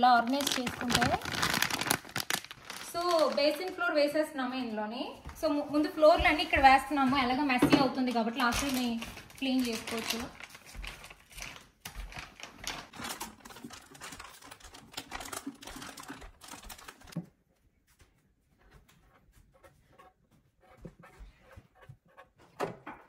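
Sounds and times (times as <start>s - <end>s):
plastic packaging rustling: 0.0s - 4.3s, 8.2s - 17.2s.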